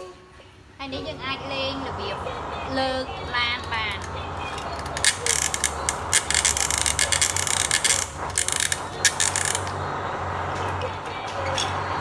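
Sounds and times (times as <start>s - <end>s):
toy crane ratchet clicking: 4.9s - 9.8s.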